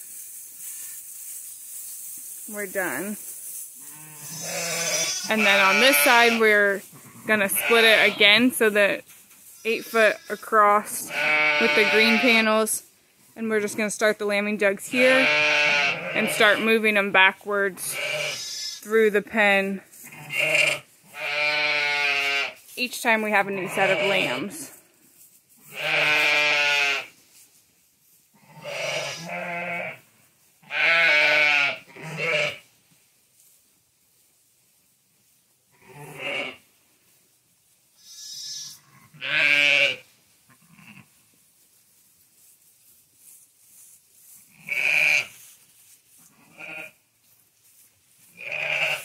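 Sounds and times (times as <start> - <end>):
sheep bleating: 3.8 - 8.5, 9.6 - 12.5, 14.9 - 16.8, 17.9 - 18.8, 20.0 - 22.6, 23.5 - 24.6, 25.7 - 27.1, 28.4 - 30.0, 30.6 - 32.6, 35.8 - 36.6, 38.0 - 41.1, 44.6 - 45.3, 46.4 - 47.0, 48.4 - 49.0.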